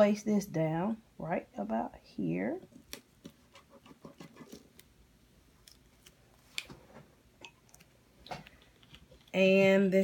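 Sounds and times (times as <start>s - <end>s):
vinyl sheet clicking and crinkling: 5.6s - 9.4s.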